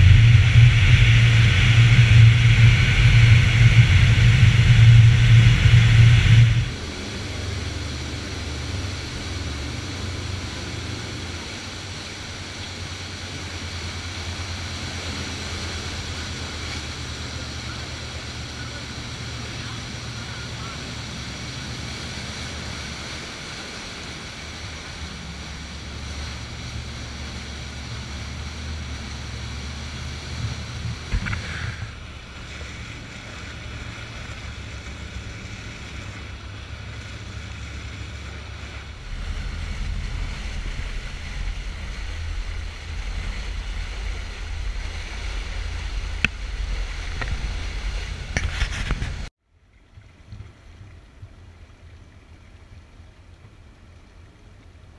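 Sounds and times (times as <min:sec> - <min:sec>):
wind buffeting microphone: 0:00.0 - 0:10.6, 0:23.3 - 0:49.3
boat engine rumble: 0:00.0 - 0:54.9
rushing water from boat wake: 0:00.0 - 0:54.9.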